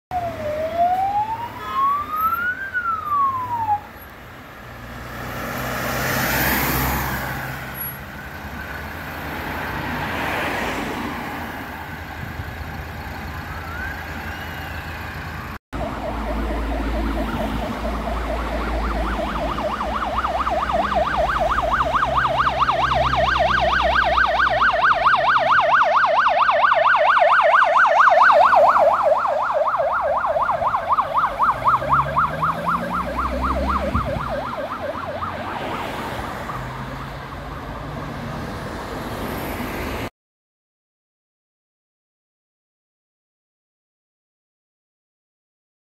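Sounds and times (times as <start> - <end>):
fast yelping siren: 0.1 - 3.9, 13.6 - 14.6, 15.8 - 37.0
ambulance siren wailing: 0.1 - 4.1, 13.0 - 38.0
cars passing by: 0.1 - 40.1.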